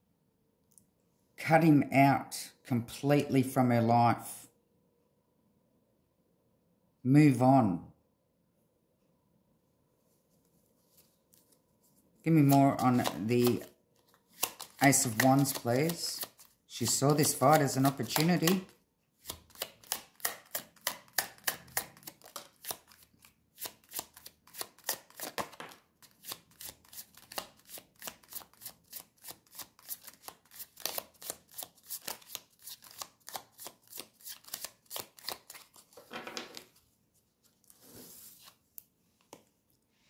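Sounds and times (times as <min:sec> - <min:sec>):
short card rustles: 0:10.4 - 0:20.9
cards shuffled tapping: 0:12.4 - 0:36.8.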